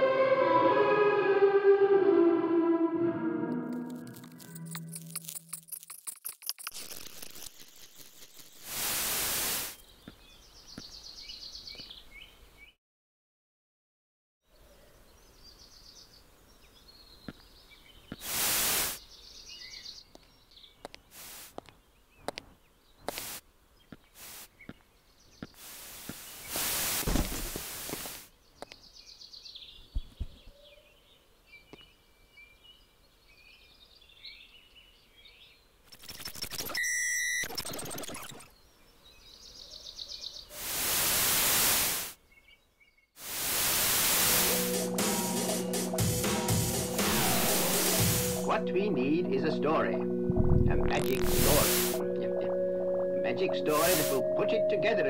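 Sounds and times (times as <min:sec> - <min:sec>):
loud hiss-like noise bursts: 0:06.9 - 0:09.8, 0:18.2 - 0:19.0, 0:21.1 - 0:21.6, 0:23.1 - 0:23.5, 0:24.2 - 0:24.6, 0:25.6 - 0:28.3, 0:40.5 - 0:42.2, 0:43.2 - 0:48.5, 0:51.1 - 0:52.0, 0:53.8 - 0:54.2
birds chirping faintly: 0:09.7 - 0:12.8, 0:14.5 - 0:26.6, 0:28.3 - 0:35.8, 0:37.6 - 0:40.6.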